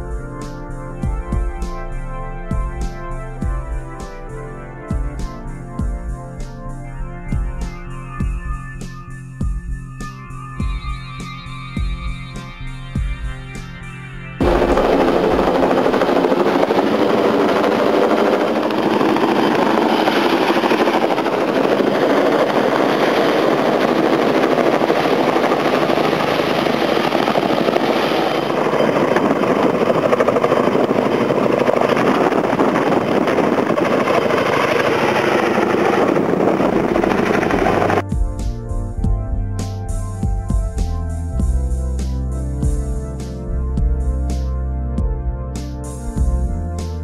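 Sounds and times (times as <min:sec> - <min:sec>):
helicopter rotor chop: 0:14.4 - 0:38.4.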